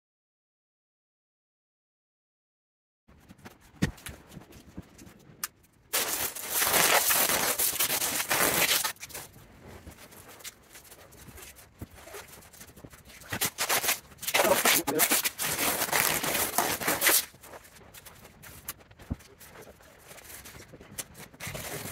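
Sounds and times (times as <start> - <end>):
blankets rustling: 3.1 - 21.9
tape being pulled: 5.9 - 9.3, 9.9 - 18.8, 19.4 - 21.9
plastic wrap crackling: 5.9 - 21.9.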